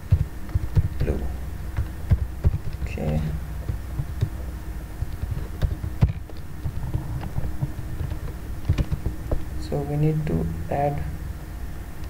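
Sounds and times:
low electrical hum: 0.0s - 12.0s
keyboard and mouse clicks: 1.8s - 4.4s, 5.0s - 9.5s.

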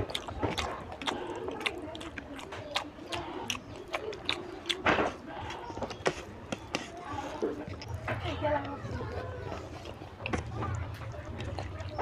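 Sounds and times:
fingers squishing rice: 0.0s - 8.0s
wet lip smacks and chewing clicks: 0.0s - 12.0s.

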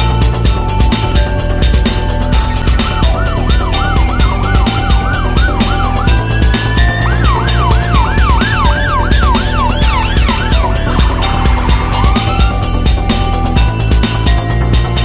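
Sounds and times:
background music with steady beat: 0.0s - 15.0s
ambulance siren yelping: 2.4s - 14.3s.

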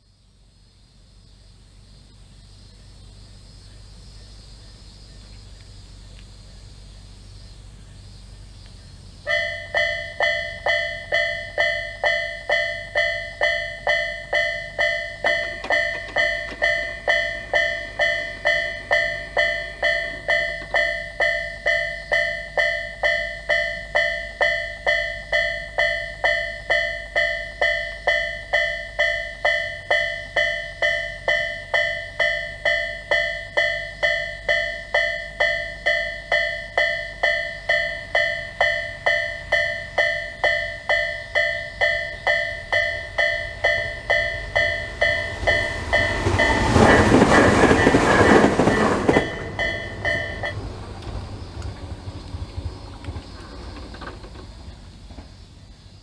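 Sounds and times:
train rushing past: 9.2s - 55.4s
level crossing alarm dinging: 9.3s - 50.6s.

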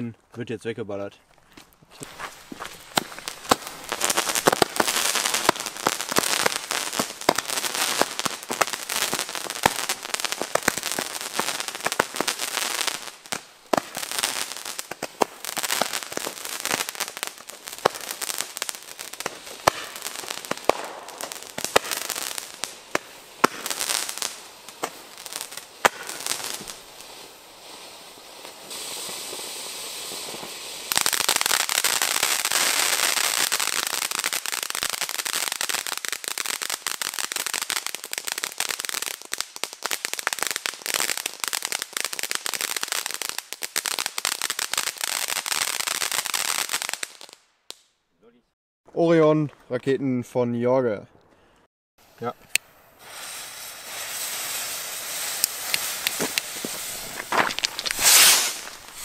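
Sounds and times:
sharp cracks and pops: 1.3s - 26.8s, 55.3s - 59.0s
firework fountain hissing: 2.0s - 46.0s, 52.0s - 59.0s.

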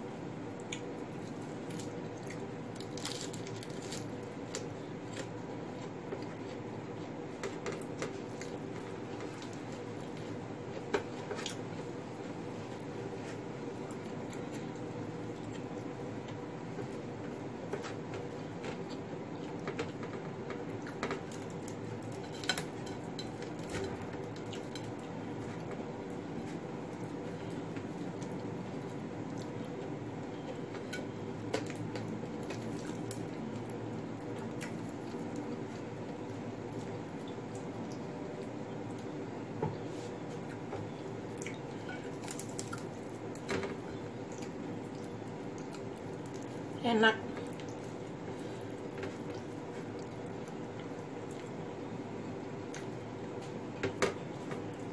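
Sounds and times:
steady low hum: 0.0s - 54.9s
crisp crackles of fried fish: 0.5s - 15.9s, 16.9s - 29.9s, 30.9s - 39.1s, 40.0s - 51.7s
wet chewing: 44.2s - 46.7s.

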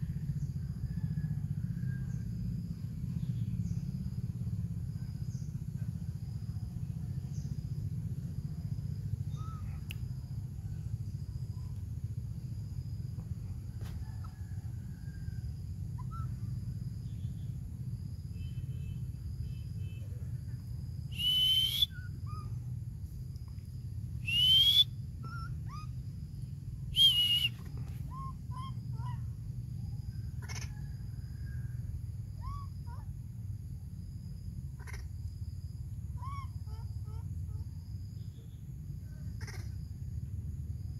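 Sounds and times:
insect-like tones: 0.0s - 40.9s
baby monkey crying: 30.4s - 30.7s, 34.8s - 35.1s, 36.2s - 37.5s, 39.4s - 39.7s.

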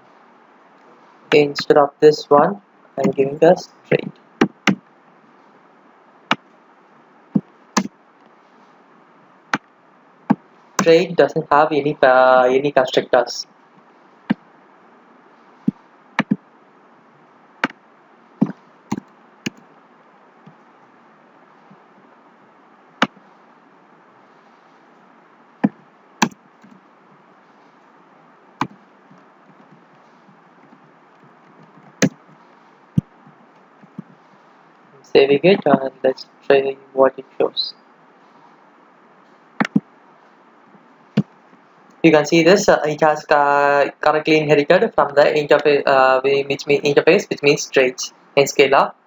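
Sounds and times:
faint steady hiss: 0.0s - 49.0s.

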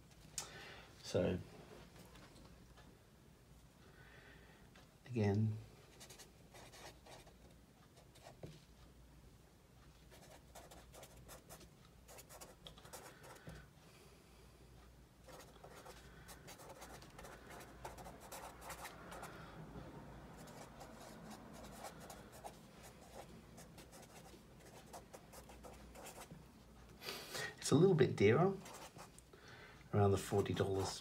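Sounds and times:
pen scratching on paper: 10.1s - 13.4s, 15.3s - 19.3s, 20.4s - 26.3s, 28.6s - 29.1s.

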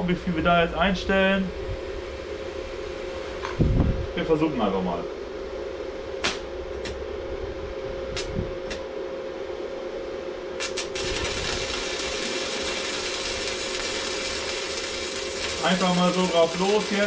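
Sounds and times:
welder hum: 5.2s - 17.0s
welding electrode snaps: 6.2s - 7.0s, 8.1s - 8.9s, 10.6s - 17.0s
welding arc hissing: 10.6s - 17.0s.

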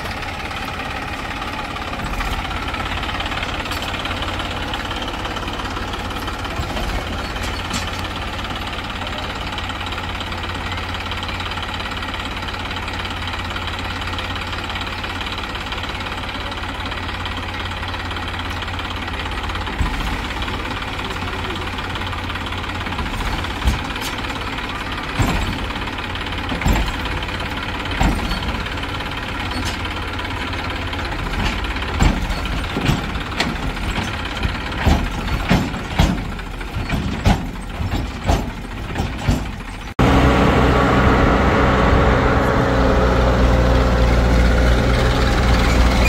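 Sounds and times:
diesel engine running: 0.0s - 46.0s.

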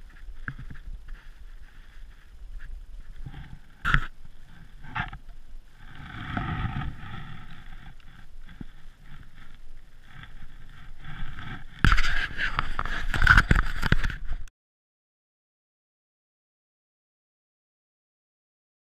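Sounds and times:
rustling and knocking on microphone: 0.0s - 14.5s.

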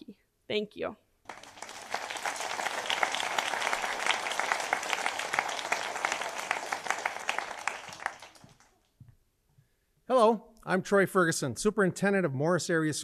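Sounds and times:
audience applauding: 1.3s - 8.9s.

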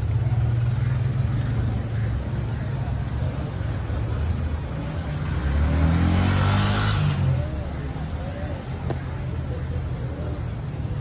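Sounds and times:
faint voices: 0.0s - 11.0s
vehicle engine rumble: 0.0s - 11.0s.

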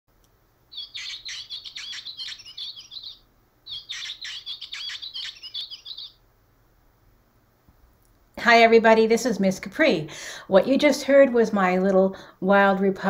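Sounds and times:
bird song from toy speaker: 0.7s - 6.2s.

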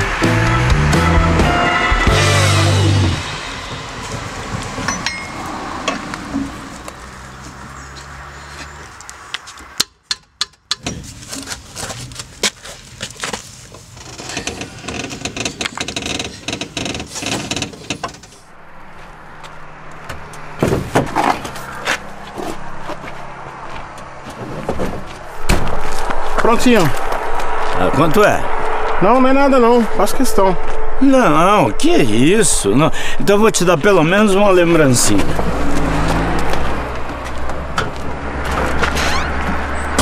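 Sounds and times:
metal wheel knocks: 3.6s - 6.5s
lug wrench clanking and clicking: 4.9s - 6.0s.

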